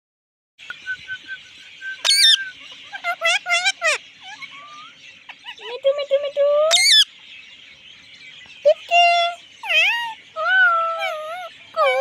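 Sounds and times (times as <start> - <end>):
parakeet squawk: 2.0 - 5.8, 6.7 - 7.1, 9.1 - 12.0
parakeet speech-like calls: 2.0 - 7.2, 8.5 - 12.0.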